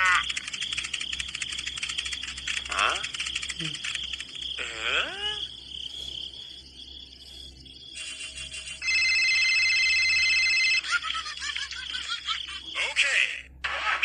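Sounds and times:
high squeaky chirps: 0.0 - 9.3
electronic telephone ring: 8.7 - 11.0.

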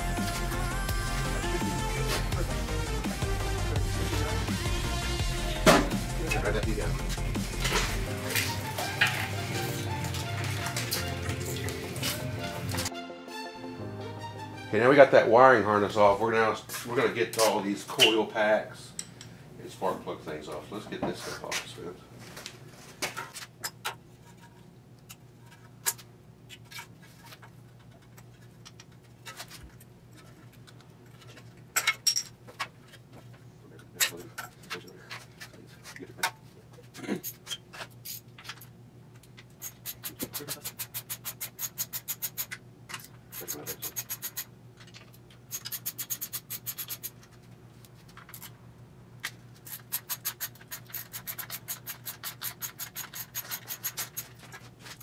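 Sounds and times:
fast ratchet clicks: 39.6 - 42.6, 43.3 - 44.5, 45.5 - 47.2, 49.7 - 54.3.

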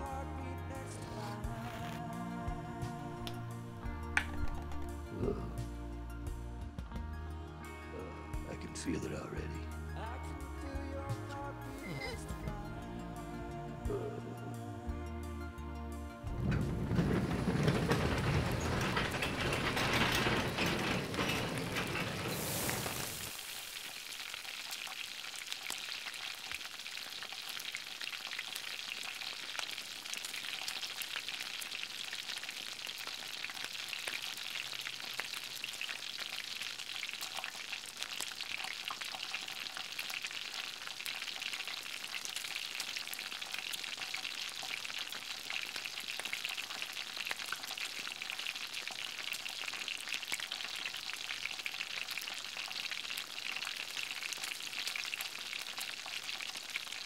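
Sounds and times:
burger patty sizzling on griddle: 0.9 - 2.3, 16.4 - 57.0.

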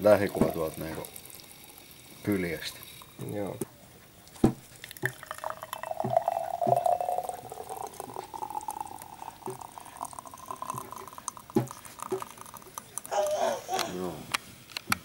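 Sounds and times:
smoothie gurgling into mug: 0.0 - 3.6, 4.7 - 13.4.

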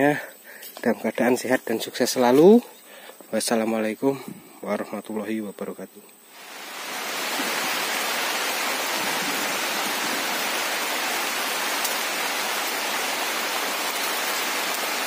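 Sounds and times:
rain falling on leaves: 6.3 - 15.0.

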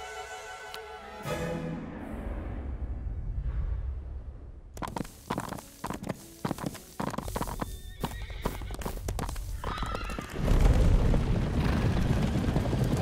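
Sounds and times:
horse hooves knocking: 4.8 - 10.8
galloping hooves on dirt: 4.8 - 13.0
horse whinnying: 7.8 - 10.4.

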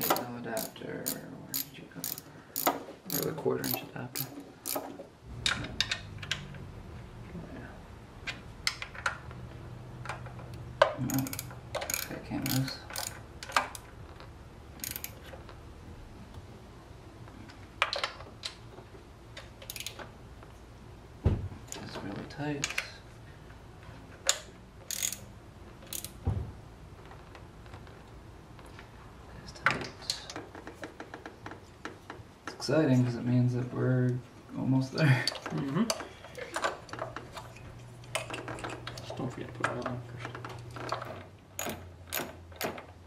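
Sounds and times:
socket ratchet clicking: 0.0 - 4.9, 11.1 - 13.9, 14.8 - 15.3, 19.6 - 20.0, 24.3 - 26.2
tools clinking: 0.0 - 5.0, 14.8 - 15.3.

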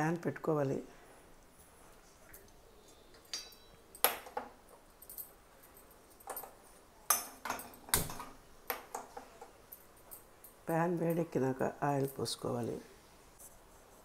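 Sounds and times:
metal pan clinking on burner grate: 3.3 - 3.8.

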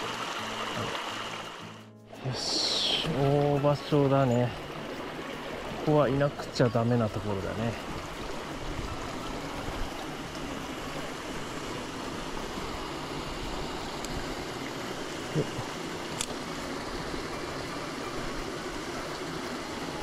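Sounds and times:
water spilling into pool: 0.0 - 1.8
mountain stream rushing: 0.0 - 20.0
light click: 16.1 - 16.4.

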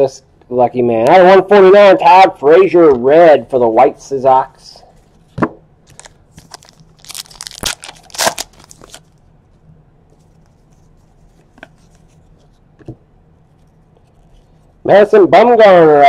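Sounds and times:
foil wrapper tearing and crinkling: 5.9 - 9.2.

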